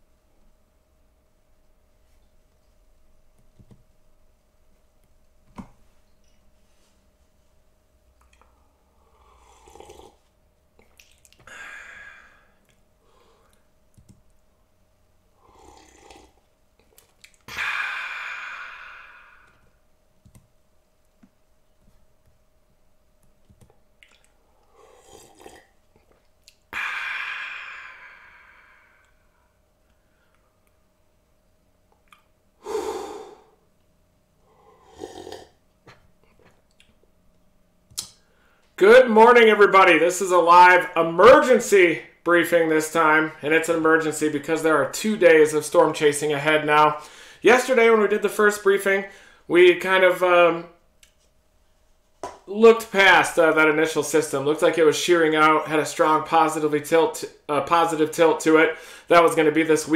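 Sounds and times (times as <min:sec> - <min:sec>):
faint electrical hum: 0:00.0 - 0:59.9
man slurping drink: 0:09.4 - 0:10.2, 0:15.4 - 0:16.4, 0:24.7 - 0:25.8, 0:34.6 - 0:36.0
breathy exhale: 0:11.4 - 0:13.6, 0:17.5 - 0:19.7, 0:26.7 - 0:30.4, 0:32.6 - 0:33.6, 0:47.0 - 0:47.4.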